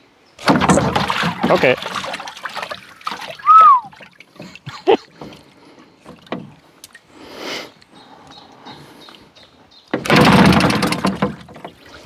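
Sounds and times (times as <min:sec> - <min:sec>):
outboard engine turning over: 0:10.0 - 0:12.0.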